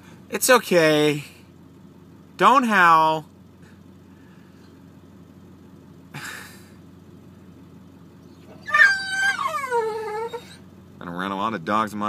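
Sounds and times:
car engine idling: 0:00.0 - 0:12.0
dog howling: 0:08.4 - 0:10.6.

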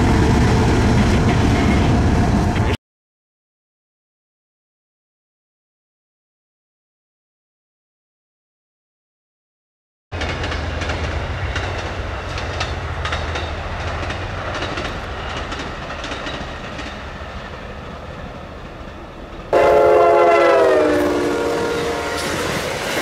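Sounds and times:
train rumble: 0:00.0 - 0:02.8, 0:10.2 - 0:23.0
train wheels clicking over joints: 0:10.2 - 0:19.6
locomotive air horn chord: 0:19.5 - 0:22.5.

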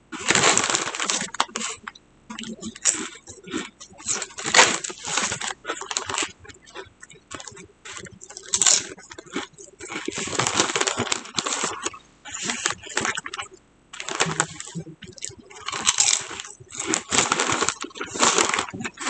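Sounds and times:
crunchy chewing of chips: 0:00.0 - 0:19.0
foil bag crinkling: 0:00.1 - 0:19.0.

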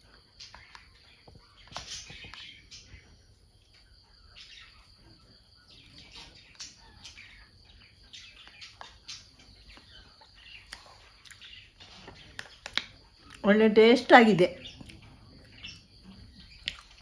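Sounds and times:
faint chirping of small birds: 0:00.0 - 0:17.0.

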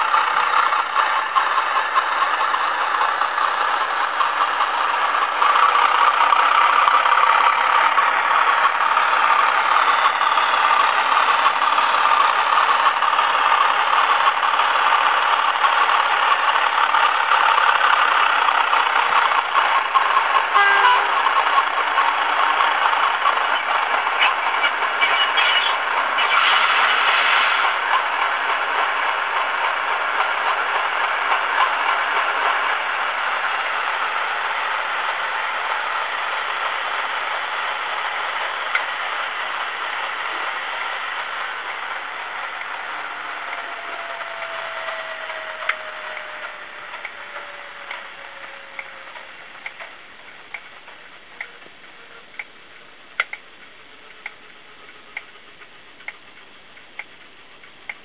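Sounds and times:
diesel engine drone from small speaker: 0:00.0 - 0:58.0
brief pitched tone: 0:20.6 - 0:21.3, 0:25.0 - 0:26.7.

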